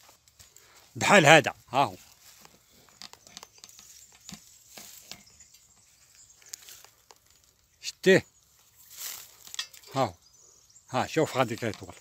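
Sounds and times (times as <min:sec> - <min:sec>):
leaves and twigs rustling: 0:00.0 - 0:12.0.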